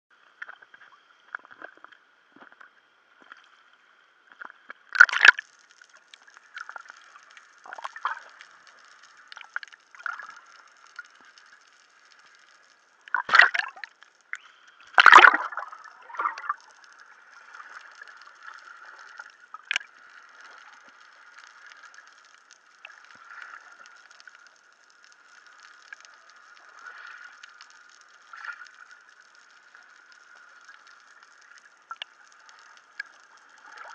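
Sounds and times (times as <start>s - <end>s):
muffled water sloshing and splashing: 4.3s - 24.5s
underwater gurgling and bubbling: 4.8s - 33.9s.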